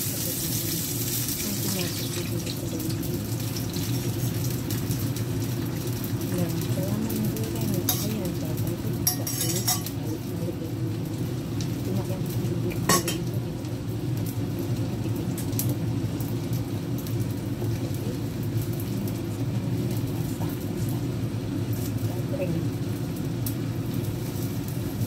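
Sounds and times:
gas stove rumble: 0:00.0 - 0:25.0
utensil clink: 0:09.1 - 0:10.0.

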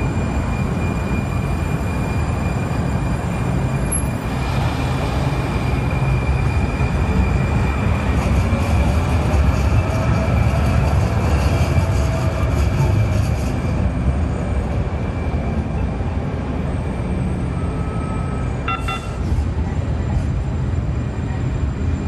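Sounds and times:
street traffic rumble: 0:00.0 - 0:22.0
short beep: 0:17.6 - 0:19.2.

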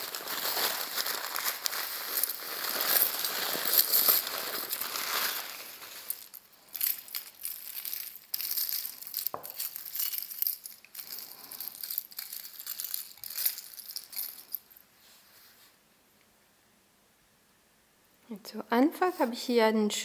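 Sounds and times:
metal jewelry clinking: 0:00.0 - 0:14.9.

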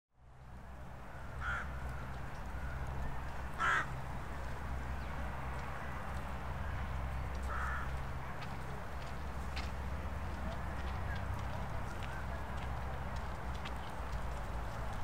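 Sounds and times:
crows cawing: 0:01.4 - 0:01.8, 0:03.5 - 0:04.0, 0:07.5 - 0:08.0.

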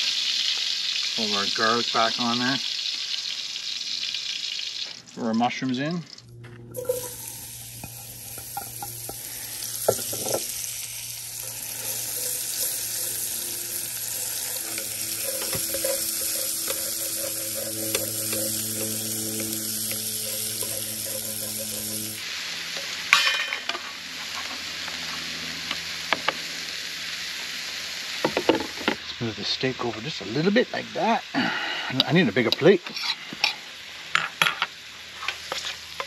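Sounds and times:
mushrooms sizzling in a skillet: 0:00.0 - 0:06.0, 0:06.8 - 0:36.0
wooden spatula scraping pan: 0:11.9 - 0:22.2.

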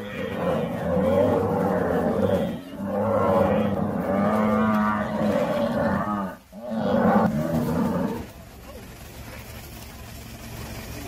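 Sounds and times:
buffalo bellowing: 0:00.0 - 0:08.4.

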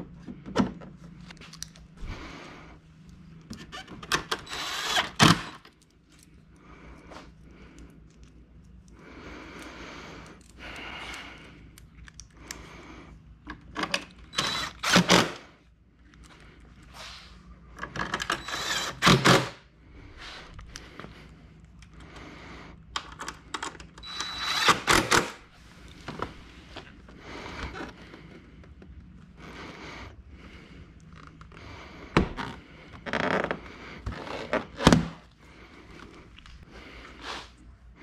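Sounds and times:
impact driver driving screws: 0:03.8 - 0:05.6, 0:13.8 - 0:15.4, 0:18.1 - 0:19.6, 0:24.0 - 0:25.4.

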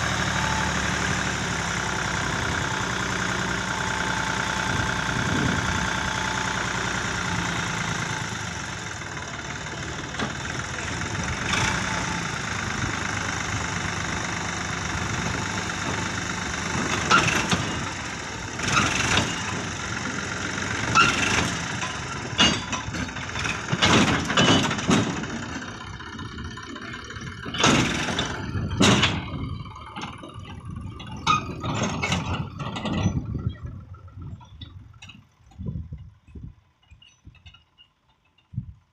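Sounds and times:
tractor diesel engine running: 0:00.0 - 0:38.9
sharp knocks and clatters: 0:21.4 - 0:25.4, 0:27.5 - 0:29.3.

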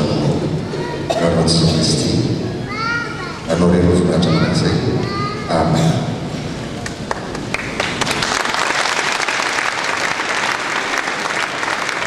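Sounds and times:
audience applauding: 0:06.8 - 0:12.0.

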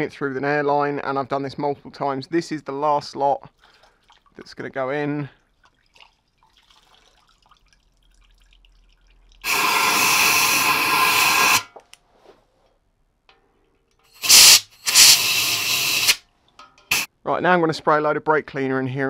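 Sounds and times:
compressed air blow gun hissing: 0:09.4 - 0:11.7, 0:14.2 - 0:16.2.

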